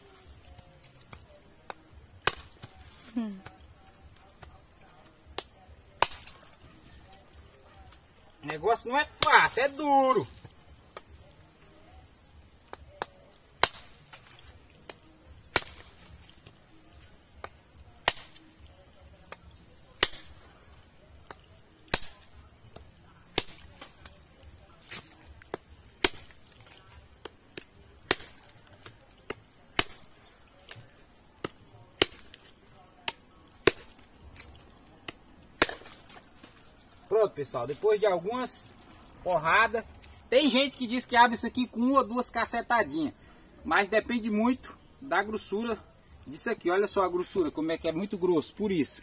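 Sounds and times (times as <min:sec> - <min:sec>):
machete chopping hard nut shell: 0:01.7 - 0:02.9, 0:05.4 - 0:06.6, 0:12.7 - 0:16.2, 0:17.4 - 0:18.5, 0:19.9 - 0:20.4, 0:21.3 - 0:24.2, 0:24.8 - 0:36.6.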